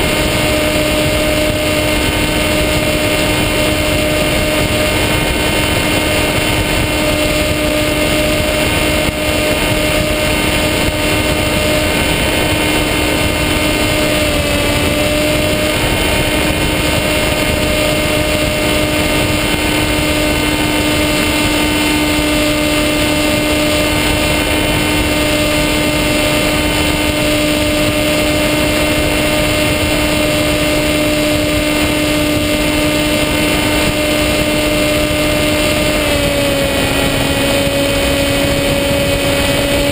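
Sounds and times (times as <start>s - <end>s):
model plane motor whine: 0.0s - 39.9s.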